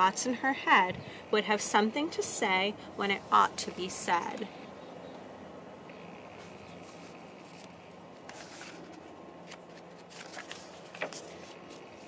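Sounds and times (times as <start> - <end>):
book pages turning: 6.3 - 12.0.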